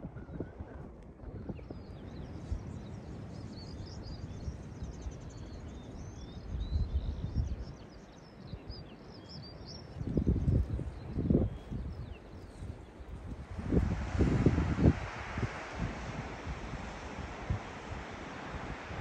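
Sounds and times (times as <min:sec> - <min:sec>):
wind buffeting microphone: 0:00.0 - 0:19.0
bird chirping song: 0:01.3 - 0:13.3.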